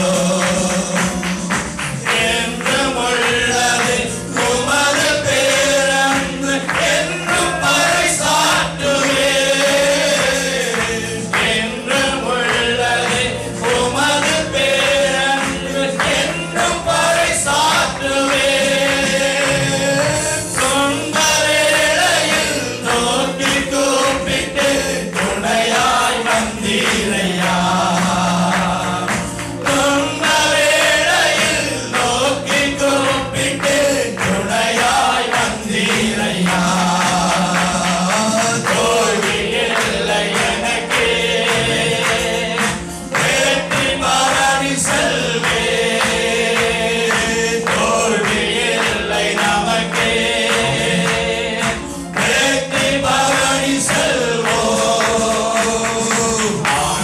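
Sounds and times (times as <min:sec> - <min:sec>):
electronic keyboard: 0:00.0 - 0:57.0
men and congregation singing: 0:00.0 - 0:57.0
steady beat: 0:00.0 - 0:57.0.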